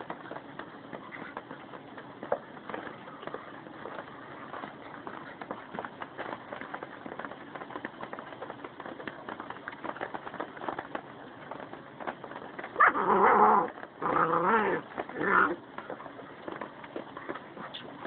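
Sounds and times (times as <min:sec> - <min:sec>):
wolves scuffling: 0:00.0 - 0:18.0
wolf wavering cries: 0:12.8 - 0:15.6.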